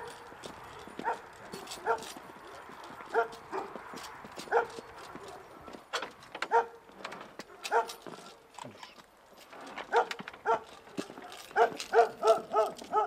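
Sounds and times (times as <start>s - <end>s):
dog barking: 0.0s - 3.8s, 4.4s - 5.9s, 6.5s - 6.8s, 7.4s - 8.3s, 9.9s - 13.0s.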